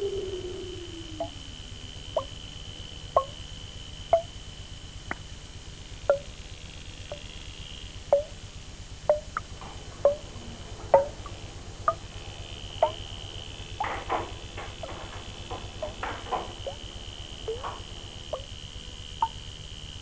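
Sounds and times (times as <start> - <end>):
faint steady hum: 0.0 - 20.0
thin high whine: 0.0 - 20.0
sharp ringing ticks: 2.0 - 2.4, 3.1 - 4.5, 6.1 - 6.4, 7.0 - 19.6.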